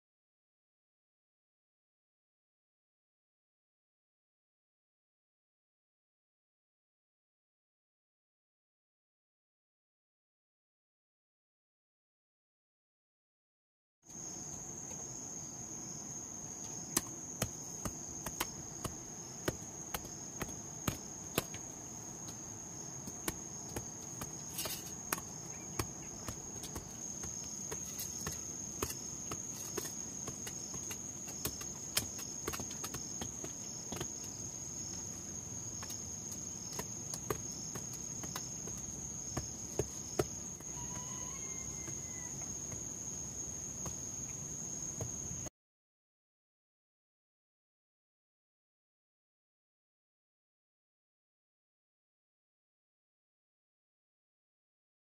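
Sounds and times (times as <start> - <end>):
insects droning: 14.1 - 45.5
hoes striking soil: 16.6 - 35.1, 35.7 - 41.0.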